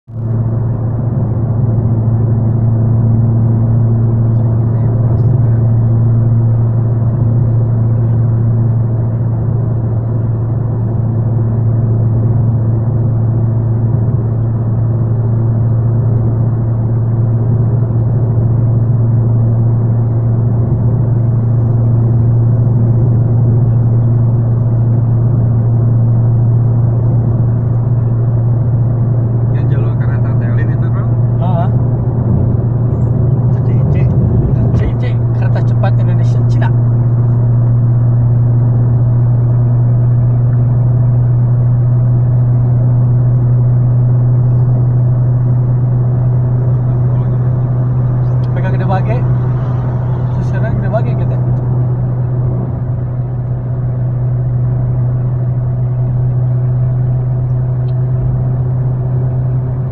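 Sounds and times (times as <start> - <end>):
car engine hum: 0.1 - 59.9
tyre and road noise: 17.2 - 59.9.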